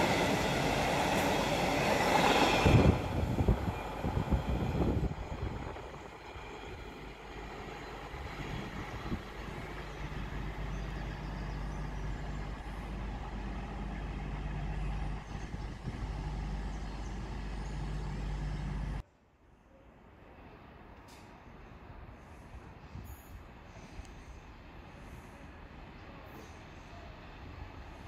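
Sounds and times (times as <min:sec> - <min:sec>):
diesel train engines idling: 0:00.0 - 0:19.0.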